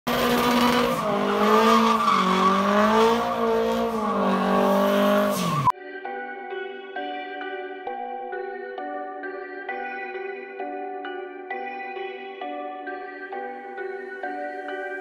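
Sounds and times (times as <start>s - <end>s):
engine at high revs: 0.1s - 5.7s
tyres squealing: 0.1s - 5.7s.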